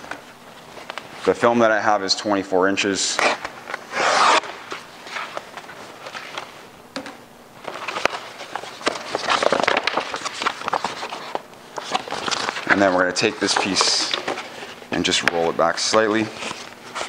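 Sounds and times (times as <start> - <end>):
plastic film rustling: 0.0 - 1.6, 7.6 - 17.0.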